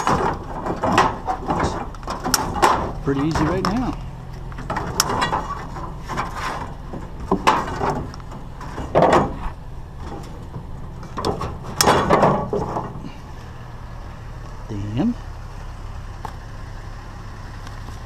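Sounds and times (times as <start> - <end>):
scrap metal and plastic clattering: 0.0 - 13.3
low engine hum: 0.0 - 18.0.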